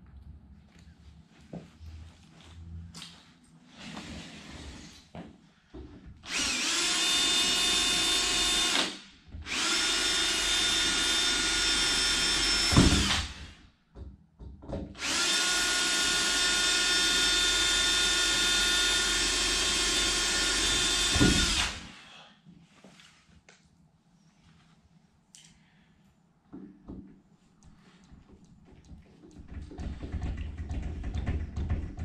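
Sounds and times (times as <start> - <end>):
cordless drill driving screws: 6.3 - 13.6, 15.0 - 22.0.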